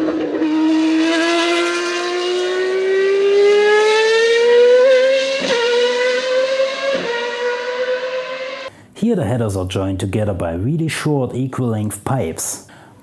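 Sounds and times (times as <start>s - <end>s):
racing car engine wailing: 0.0s - 8.7s.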